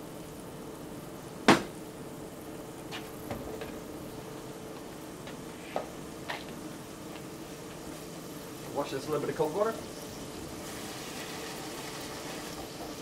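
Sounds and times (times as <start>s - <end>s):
steady hum: 0.0s - 13.0s
utensil knock on worktop: 1.5s - 1.7s.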